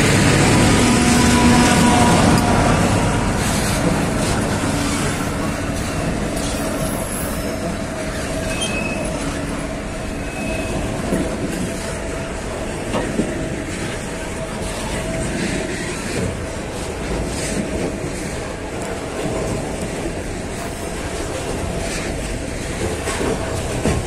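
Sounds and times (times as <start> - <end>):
train wagons rumbling on rails: 0.0 - 24.0
high wheel squeals: 6.4 - 11.2.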